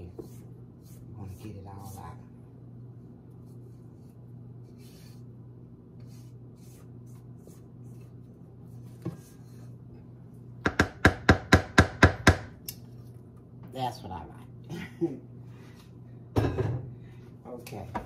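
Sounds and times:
spatula knocking on metal: 10.6s - 12.5s.

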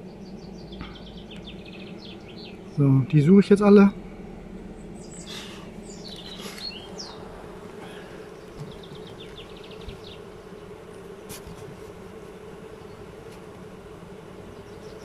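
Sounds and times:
bees buzzing: 0.0s - 15.0s.

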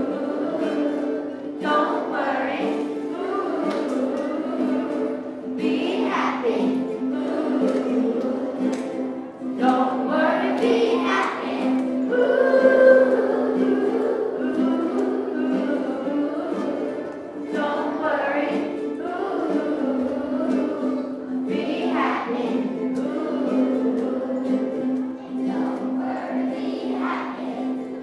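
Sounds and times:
children singing together: 0.0s - 28.0s
ukulele: 0.0s - 28.0s.

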